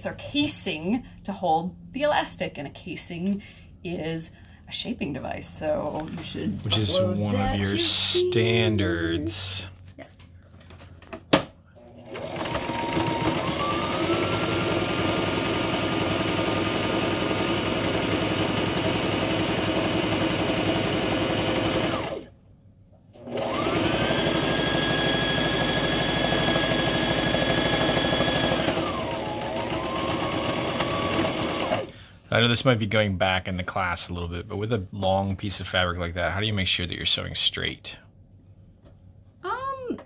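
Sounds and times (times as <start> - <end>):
electric sewing machine stitching: 11.8 - 22.3, 23.2 - 31.9.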